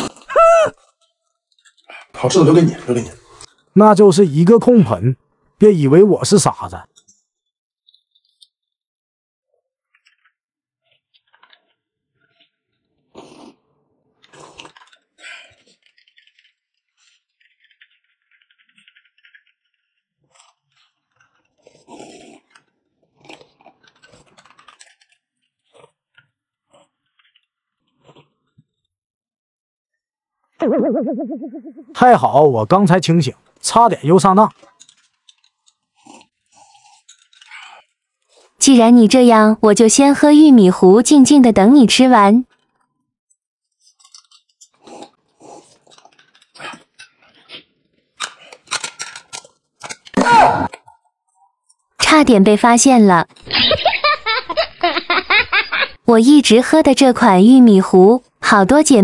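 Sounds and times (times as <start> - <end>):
people slurping porridge: 0.0 - 1.0, 13.0 - 18.7, 20.3 - 24.7, 34.6 - 38.6, 44.7 - 48.8
chewing soft bun: 9.9 - 28.9, 34.5 - 38.6, 43.7 - 50.1.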